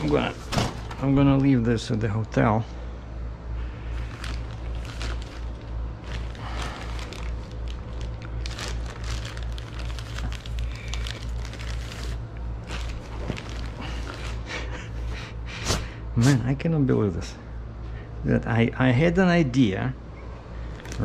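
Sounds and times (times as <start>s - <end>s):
low pulsing hum: 0.0s - 21.0s
plastic packaging crinkling: 3.9s - 14.5s, 20.7s - 21.0s.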